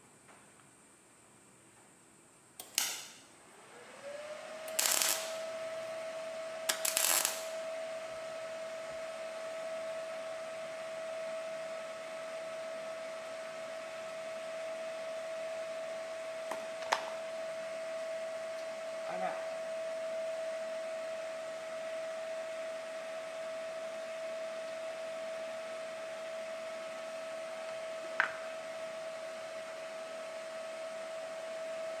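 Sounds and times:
sharp metallic click: 2.6 - 3.2
welding hiss: 2.6 - 3.3, 4.7 - 5.4, 6.7 - 7.6.

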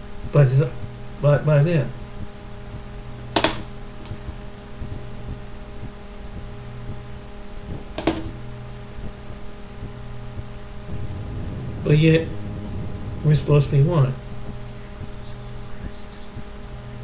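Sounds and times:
electrical hum: 0.0 - 17.0
sharp click: 3.4 - 4.2, 8.0 - 8.4.

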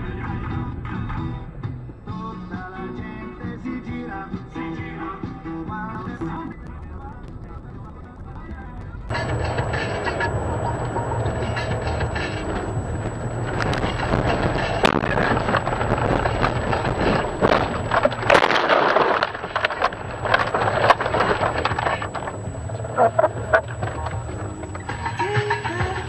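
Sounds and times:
thumps and clatter: 6.0 - 26.0
car cabin drone: 6.6 - 26.0
snow and ice hitting car: 9.1 - 24.8.

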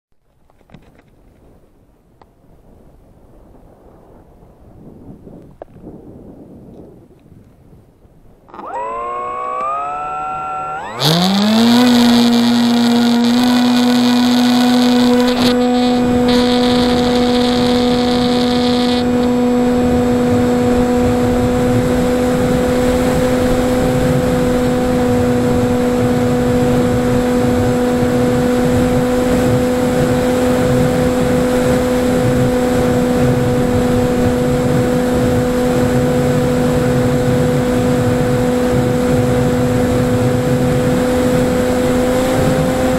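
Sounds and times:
electric motor propeller whine: 8.5 - 42.9
wind rush hiss: 11.0 - 42.9.

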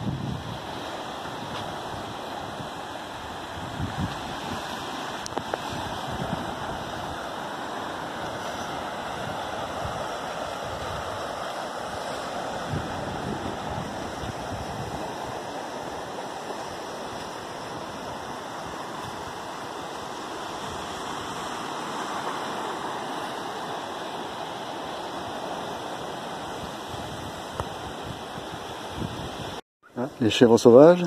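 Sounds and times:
surf breaking on rocky shore: 0.0 - 31.0
wind: 0.0 - 31.0.

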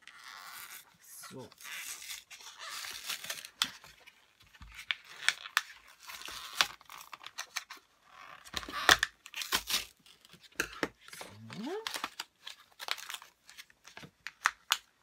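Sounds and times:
cardboard tearing: 0.1 - 3.9.

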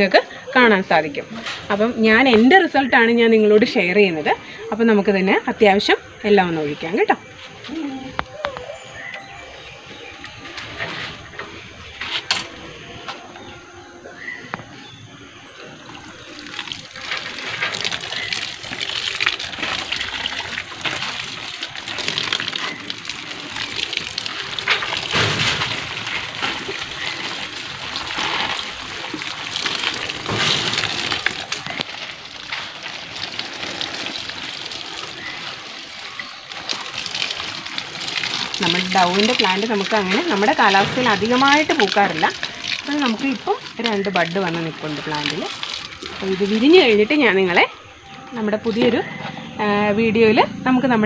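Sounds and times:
liquid pouring and splashing on soil: 15.8 - 48.0.

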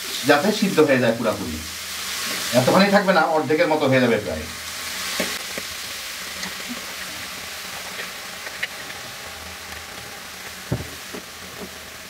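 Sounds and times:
cabbage sizzling in a hot pan: 0.0 - 12.0.

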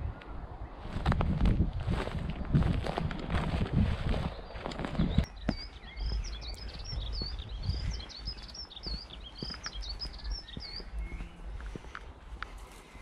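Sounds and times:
songbird singing: 3.3 - 13.0.

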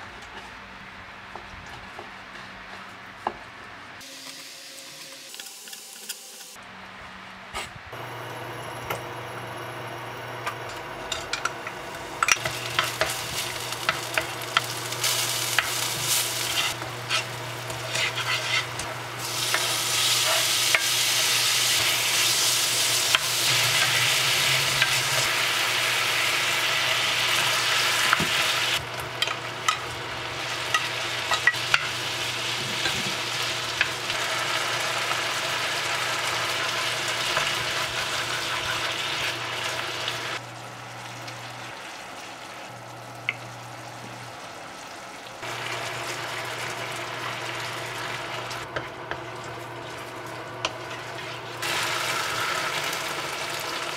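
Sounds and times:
meat and vegetables sizzling in oil: 12.2 - 40.5, 45.4 - 53.9
wooden spatula scraping a pan: 16.0 - 20.8.

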